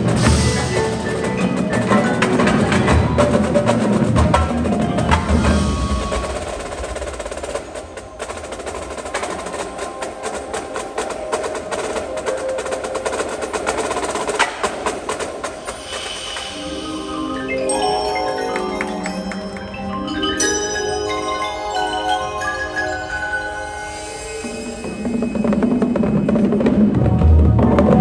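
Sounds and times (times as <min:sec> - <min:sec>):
marimbas and mallet keyboards: 0:00.0 - 0:07.2, 0:08.1 - 0:28.0
marching drums: 0:00.0 - 0:17.0, 0:24.6 - 0:28.0.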